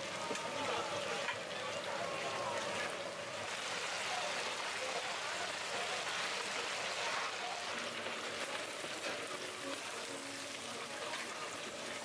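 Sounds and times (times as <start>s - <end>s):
chicken deep-frying in oil: 0.0s - 12.0s.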